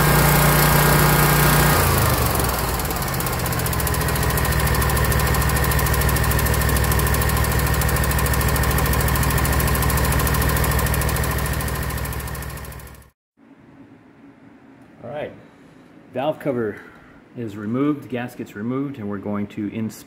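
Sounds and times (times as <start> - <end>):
engine running steadily: 0.0 - 13.1.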